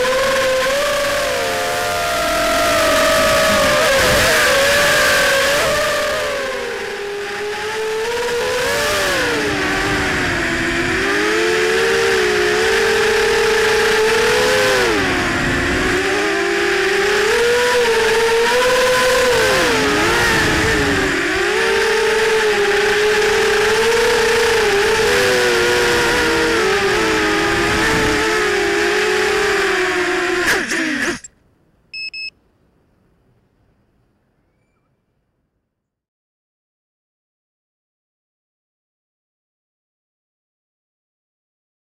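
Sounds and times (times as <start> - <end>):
drone motors and propellers whining: 0.0 - 31.3
wind rumble on microphone: 14.6 - 17.0, 25.4 - 28.8.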